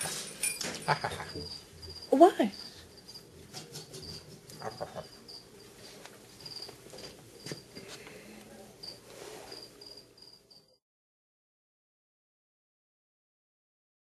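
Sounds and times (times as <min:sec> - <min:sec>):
insect chirping: 0:00.4 - 0:03.3, 0:04.0 - 0:07.8, 0:08.8 - 0:10.8
faint knocks and rustles: 0:05.6 - 0:08.2.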